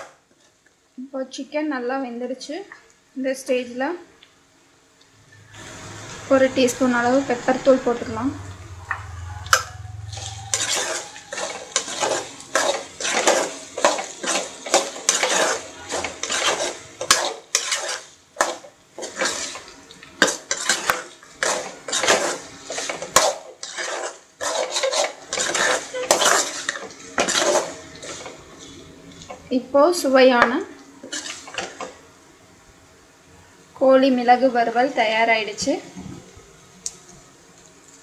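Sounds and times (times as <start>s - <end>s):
metal ladle scraping a metal pan: 8.9s - 28.8s, 31.0s - 31.9s.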